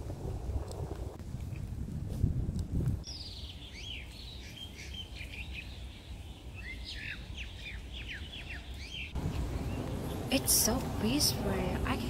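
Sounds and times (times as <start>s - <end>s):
small birds chirping: 3.0s - 12.0s.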